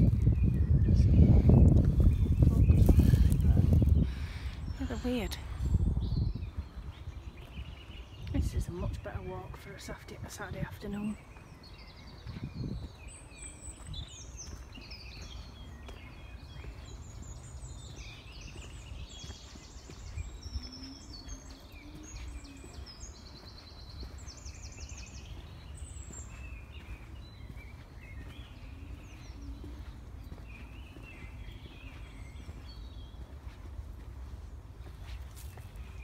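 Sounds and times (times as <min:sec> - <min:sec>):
steady low rumble: 0:00.0 - 0:11.4
songbirds chirping and trilling: 0:00.0 - 0:36.0.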